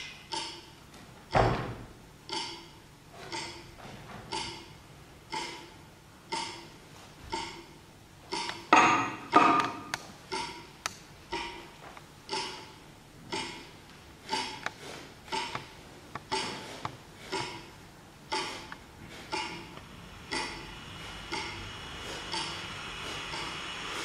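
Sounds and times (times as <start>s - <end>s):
rhythmic metallic clanks: 0.0s - 1.6s, 2.3s - 24.0s
loud metallic clangs: 8.7s - 10.0s
faint ticks: 21.3s - 21.6s.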